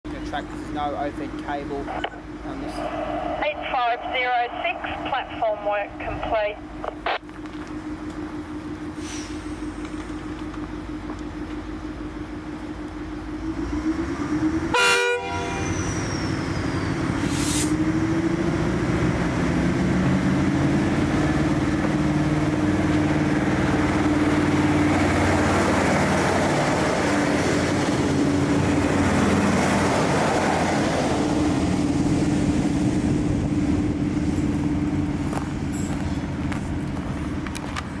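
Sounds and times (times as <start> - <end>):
diesel train engines: 0.0 - 38.0
train horn toot: 14.7 - 15.9.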